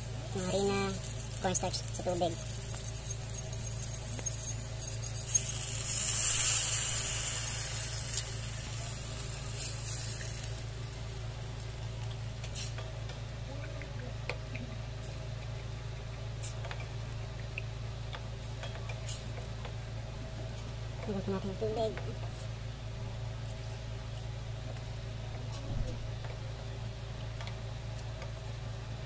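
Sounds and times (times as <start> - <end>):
loud hiss: 5.2 - 11.1.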